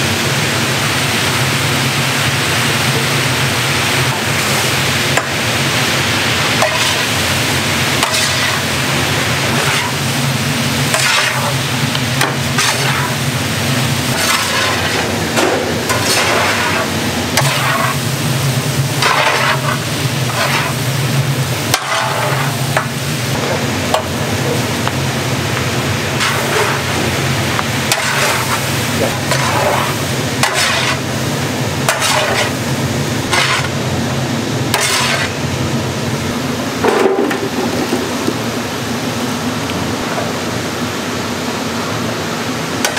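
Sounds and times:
constant low hum: 0:00.0 - 0:42.9
food sizzling: 0:00.2 - 0:38.8
spatula scraping pan: 0:06.6 - 0:07.2, 0:08.0 - 0:08.8, 0:09.4 - 0:10.1, 0:10.9 - 0:11.6, 0:12.2 - 0:13.2, 0:14.1 - 0:18.1, 0:19.0 - 0:20.9, 0:21.7 - 0:23.0, 0:26.2 - 0:27.0, 0:27.8 - 0:31.0, 0:31.8 - 0:33.8, 0:34.7 - 0:35.4.

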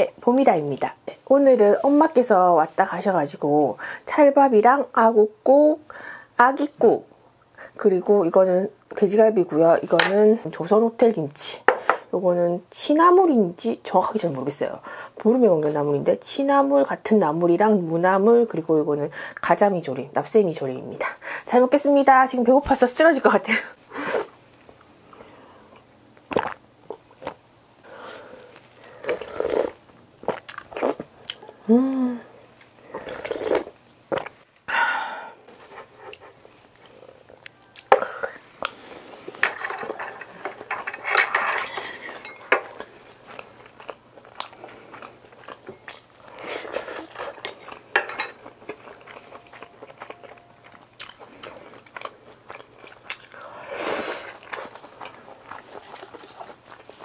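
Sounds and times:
utensils clinking against dishes: 0:39.4 - 0:42.8, 0:47.1 - 0:48.8
chewing sounds: 0:42.6 - 0:53.6, 0:54.3 - 0:57.0.

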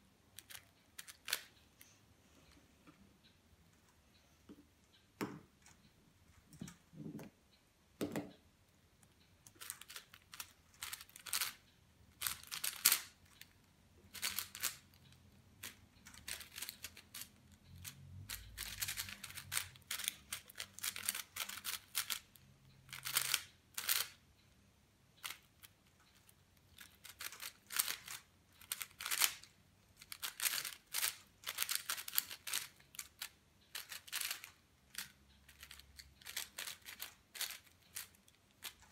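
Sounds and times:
puzzle cube clicking turns: 0:00.4 - 0:01.6, 0:09.4 - 0:24.2, 0:25.2 - 0:38.9.

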